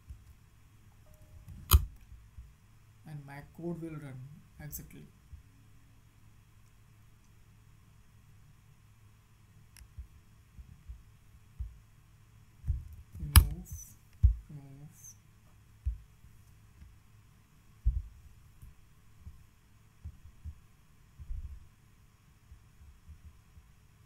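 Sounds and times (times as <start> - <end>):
sharp click: 1.1 - 2.0, 13.2 - 13.6
soft low thumps and knocks: 9.9 - 11.9, 12.7 - 13.6, 14.2 - 14.5, 15.8 - 16.4, 17.8 - 21.7, 22.4 - 23.8.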